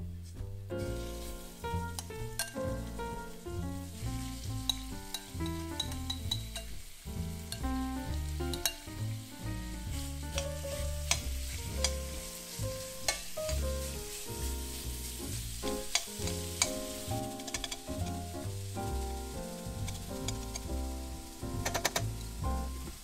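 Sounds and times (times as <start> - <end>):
background music: 0.0 - 23.0
utensil scraping a pan: 0.8 - 7.6, 9.8 - 18.4, 21.6 - 22.4
meat sizzling in a pan: 0.8 - 23.0.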